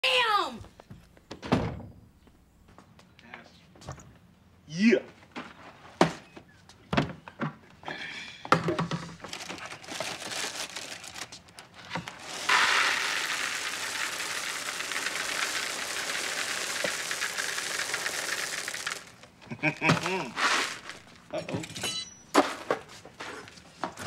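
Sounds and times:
cereal box packaging crinkling: 0:09.3 - 0:19.4, 0:20.0 - 0:21.3
dry cereal pouring into bowl: 0:12.0 - 0:19.3, 0:20.4 - 0:21.1.

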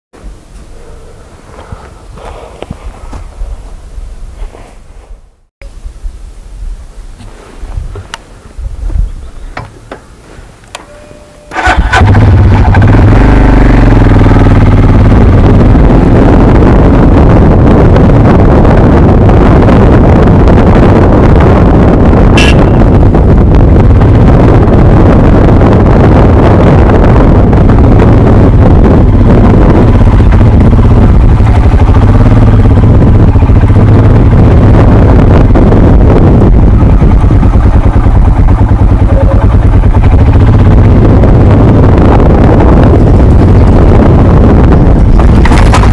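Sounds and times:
motorcycle engine running: 0:10.8 - 0:45.9.

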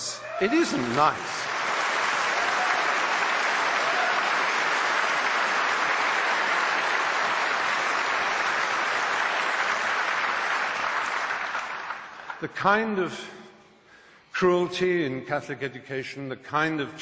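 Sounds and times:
audience applauding: 0:00.4 - 0:12.4.

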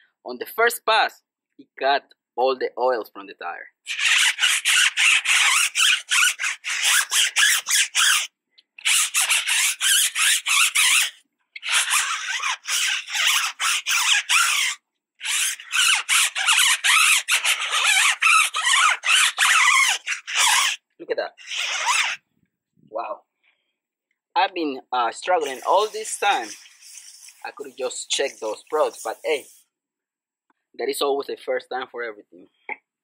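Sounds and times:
brush scrubbing a tire: 0:25.4 - 0:29.6.

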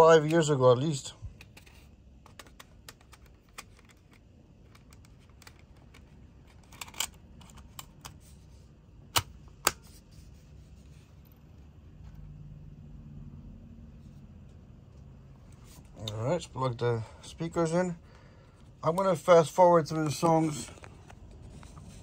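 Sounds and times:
plastic cartridge clicks and rattles: 0:01.4 - 0:08.2.

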